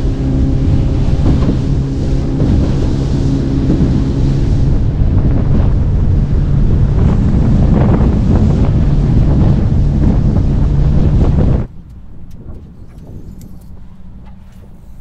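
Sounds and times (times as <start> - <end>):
boat motor running: 0.0 - 15.0
wind buffeting microphone: 0.0 - 15.0.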